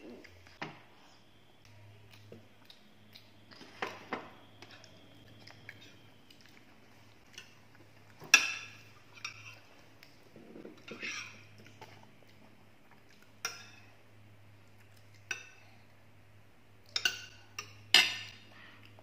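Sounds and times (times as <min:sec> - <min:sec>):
chewing: 0:01.6 - 0:03.9, 0:04.5 - 0:08.2
metal spoons clinking on plates: 0:08.2 - 0:09.7, 0:13.4 - 0:13.9, 0:16.9 - 0:18.5.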